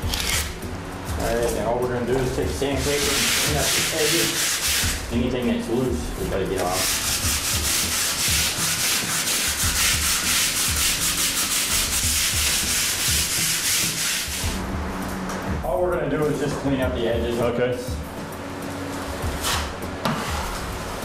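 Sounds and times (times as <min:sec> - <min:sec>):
sanding block rasping on drywall: 0:02.6 - 0:05.0, 0:06.6 - 0:14.6.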